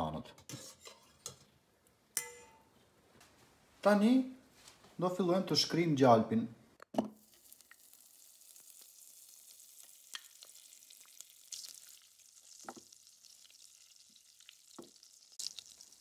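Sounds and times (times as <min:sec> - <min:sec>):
spoon tapping against pot: 0:02.2 - 0:02.6
butter sizzling in a pot: 0:07.2 - 0:16.0.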